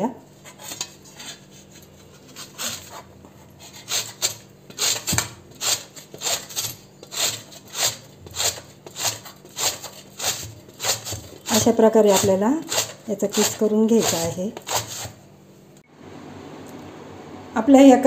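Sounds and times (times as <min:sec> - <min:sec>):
mango rasping on metal grater: 0:00.4 - 0:15.2.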